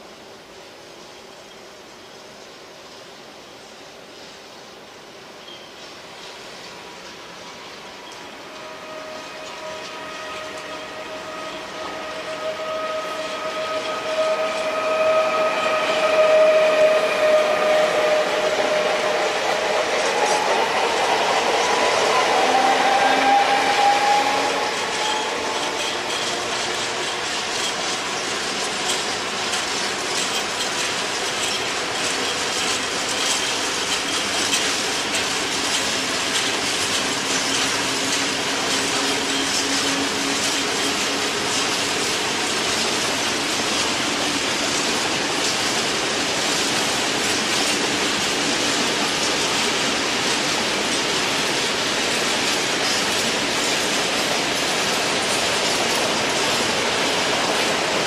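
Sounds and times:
electric locomotive whine: 0.0 - 58.0
wagon wheels clicking over rail joints: 24.9 - 58.0.

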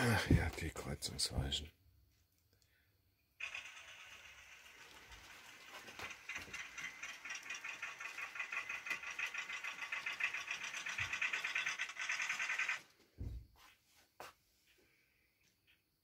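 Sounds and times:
model train rattling whir: 3.4 - 13.1.

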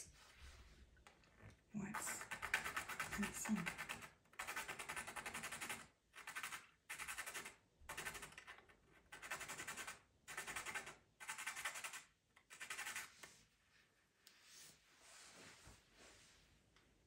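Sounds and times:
pencil being sharpened: 1.9 - 8.5, 9.1 - 13.2.

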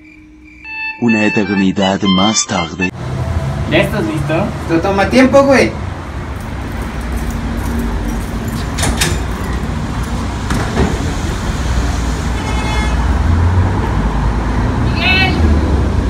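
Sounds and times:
high squeak: 0.0 - 2.9
street traffic rumble: 2.5 - 16.0
metal gate clanks: 6.8 - 11.0.

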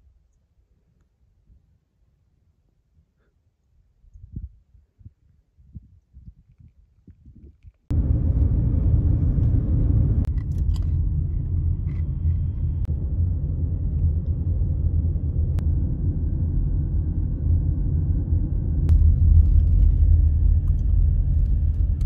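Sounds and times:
car driving rumble from cabin: 7.9 - 22.0.

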